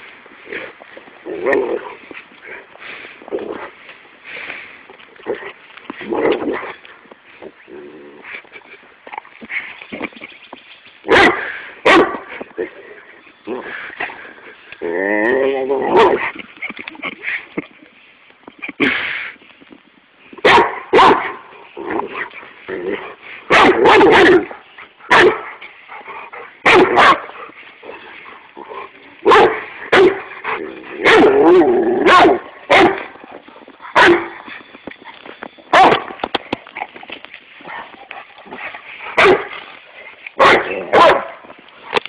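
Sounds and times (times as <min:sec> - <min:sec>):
dog barking: 0:11.1 - 0:12.2, 0:20.4 - 0:21.4, 0:23.5 - 0:24.5, 0:25.1 - 0:25.5, 0:26.6 - 0:27.3, 0:29.2 - 0:30.2, 0:31.0 - 0:33.1, 0:34.0 - 0:34.3, 0:35.7 - 0:36.1, 0:39.2 - 0:39.5, 0:40.4 - 0:41.4.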